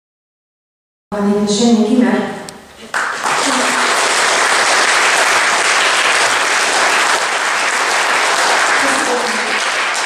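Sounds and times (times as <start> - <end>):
audience applauding: 2.9 - 10.0.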